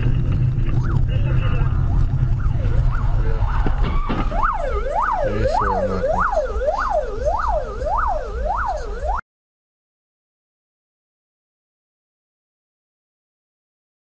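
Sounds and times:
moving car rumble: 0:00.0 - 0:09.2
siren yelping: 0:00.6 - 0:09.2.

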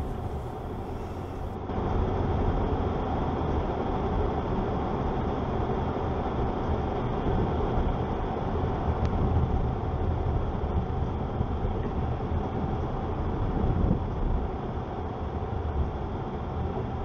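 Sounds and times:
car tyres and engine rumble: 0:00.0 - 0:01.6.

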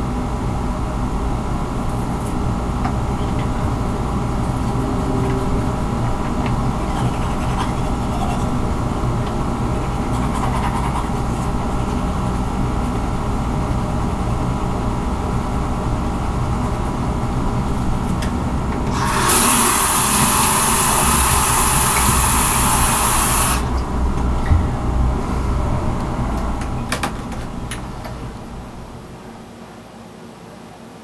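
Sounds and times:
steady low hum: 0:00.0 - 0:31.0
toothbrush scrubbing: 0:06.0 - 0:08.6, 0:09.7 - 0:12.0, 0:19.0 - 0:23.6
tap water running into sink: 0:18.9 - 0:23.7.

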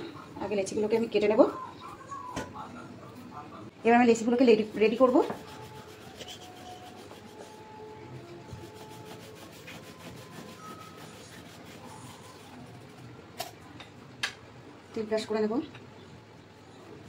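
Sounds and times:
rolling pin rubbing over dough: 0:04.2 - 0:07.8, 0:08.4 - 0:13.0.

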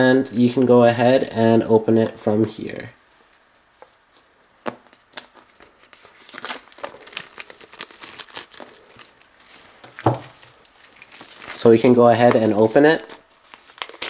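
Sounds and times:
plastic shrink-wrap tearing and crinkling: 0:05.0 - 0:14.0.

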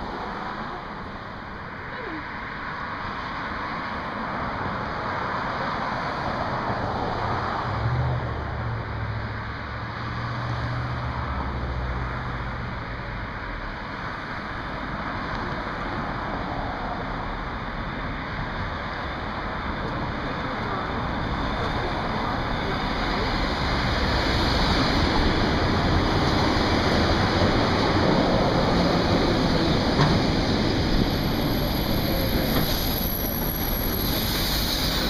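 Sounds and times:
train wheels rumbling on rails: 0:19.0 - 0:35.0.

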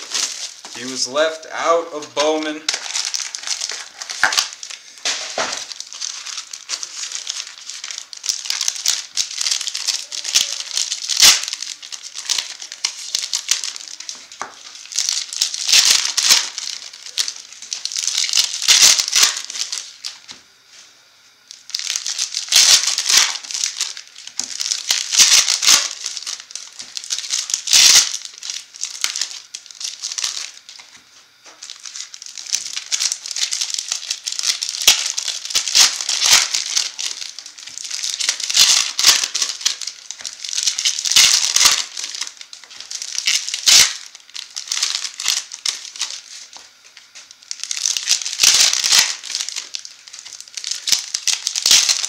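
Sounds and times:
plastic and foil crinkling: 0:00.0 - 0:20.8, 0:21.4 - 0:52.0.

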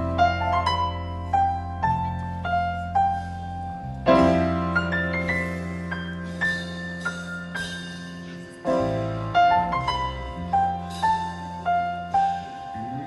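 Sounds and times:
slow piano melody: 0:00.0 - 0:13.0.

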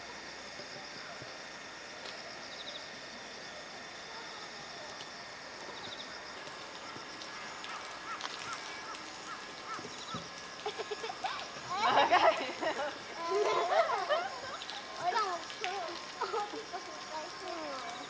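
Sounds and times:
steady high-pitched hiss: 0:00.0 - 0:18.0.

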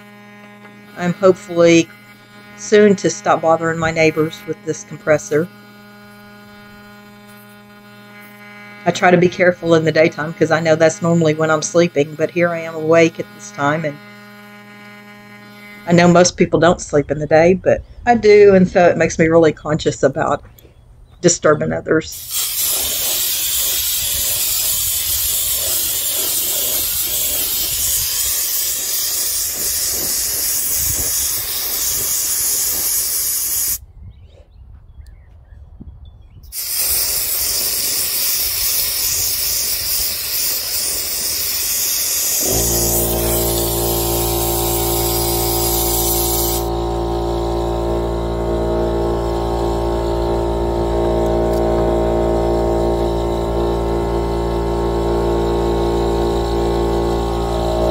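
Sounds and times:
air compressor motor humming: 0:00.0 - 0:18.5, 0:22.1 - 0:33.8, 0:36.5 - 0:57.9
spray gun air hissing: 0:22.1 - 0:33.8, 0:36.5 - 0:57.9.

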